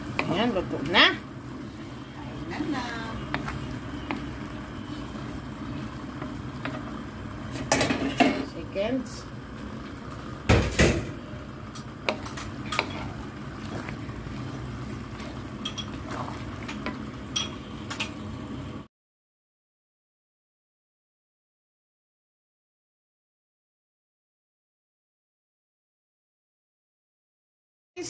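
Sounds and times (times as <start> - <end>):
wooden spatula scraping a pan: 0.0 - 8.5, 12.0 - 17.0
low simmer: 0.0 - 18.9.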